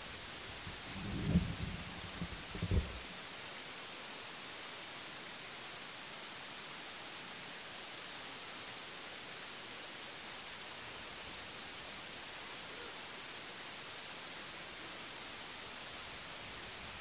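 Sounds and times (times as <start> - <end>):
electronic static hiss: 0.0 - 3.5.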